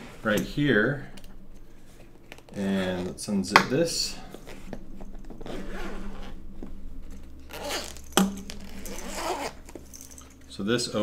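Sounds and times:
zipper rasping open: 0:05.4 - 0:06.4, 0:07.5 - 0:09.9.

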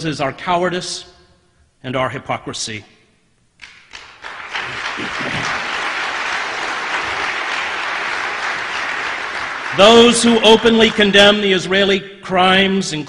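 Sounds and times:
audience applauding: 0:03.6 - 0:11.4.

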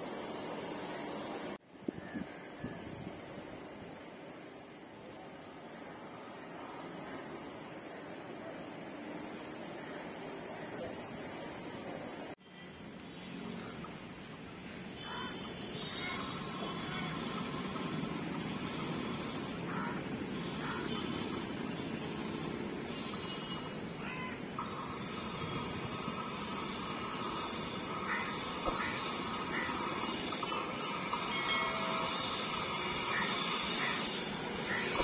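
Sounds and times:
high steady tone: 0:24.6 - 0:35.0.

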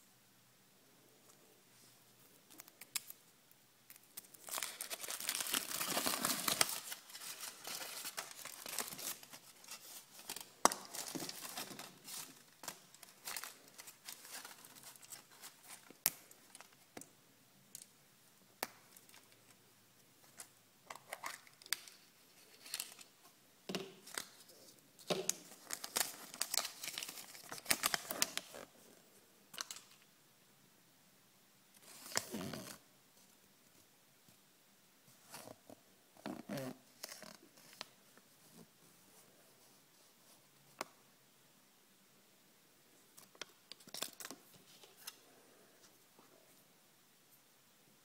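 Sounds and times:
wrapper tearing and rustling: 0:03.9 - 0:16.7, 0:25.3 - 0:28.7, 0:43.4 - 0:45.2
wrapper crinkling: 0:03.9 - 0:16.8, 0:25.2 - 0:28.7.

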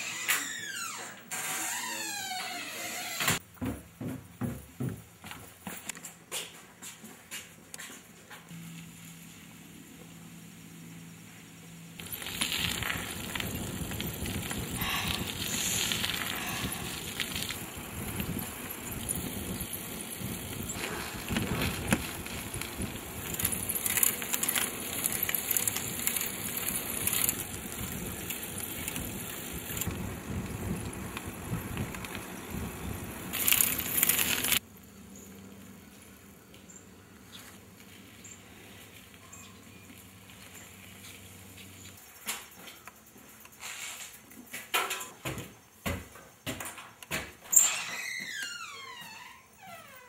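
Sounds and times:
bicycle tyres and chain rattling: 0:12.0 - 0:34.6, 0:37.4 - 0:45.2.

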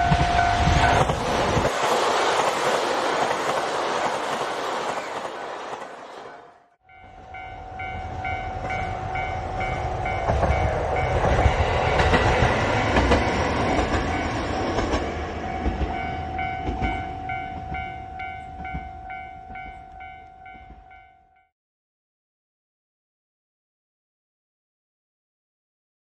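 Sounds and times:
level crossing warning bell: 0:00.0 - 0:01.2, 0:06.3 - 0:21.5
train wheel clatter: 0:00.0 - 0:06.4, 0:08.1 - 0:20.8
diesel railcar passing: 0:00.0 - 0:21.4.

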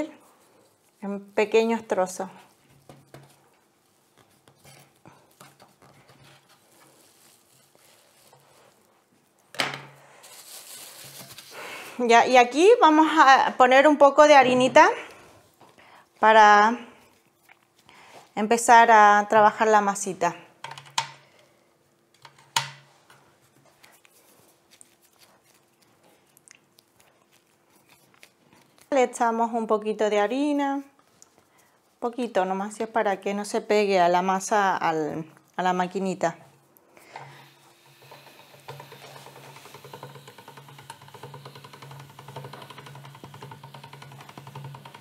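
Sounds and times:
hands working dough: 0:00.0 - 0:13.4, 0:14.2 - 0:20.1, 0:20.7 - 0:45.0.

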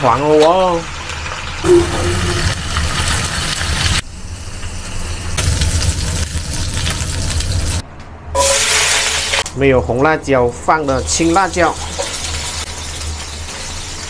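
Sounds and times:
fish sizzling in hot oil: 0:02.5 - 0:07.8, 0:11.0 - 0:14.0.

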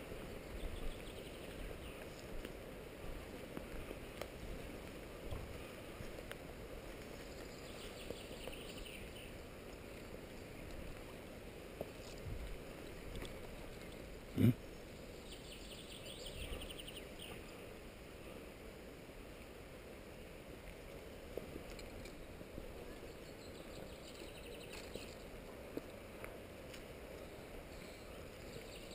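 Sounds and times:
camera rustle from walking: 0:00.8 - 0:08.8, 0:11.8 - 0:14.1.

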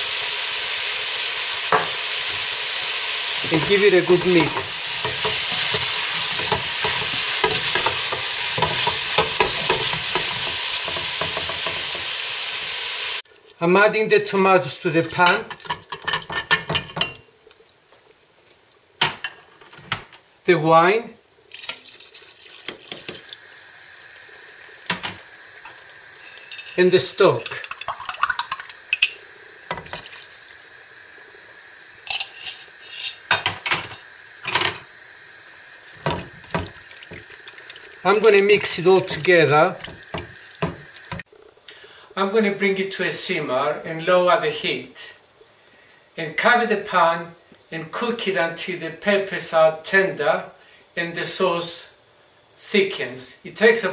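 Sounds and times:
vegetables sizzling in oil: 0:00.0 - 0:13.6, 0:21.5 - 0:41.6
glass and utensils clinking: 0:03.4 - 0:11.8, 0:26.2 - 0:30.1, 0:32.1 - 0:34.8
spatula scraping a metal pot: 0:03.4 - 0:11.9.

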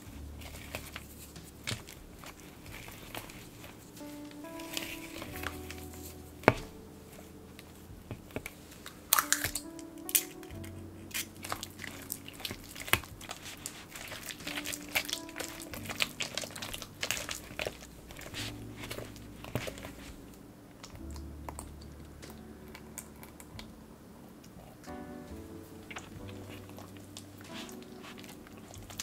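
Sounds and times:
soft background music: 0:00.0 - 0:29.0
spatula stirring sticky batter: 0:11.1 - 0:21.0.

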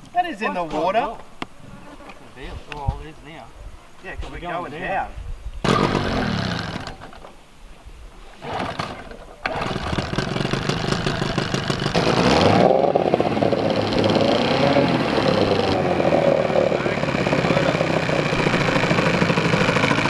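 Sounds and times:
vehicle engine running: 0:09.5 - 0:20.0.

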